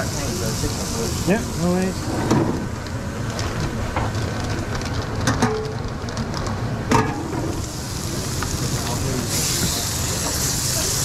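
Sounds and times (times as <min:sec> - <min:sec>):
griddle sizzling hiss: 0:00.0 - 0:04.2, 0:06.9 - 0:11.0.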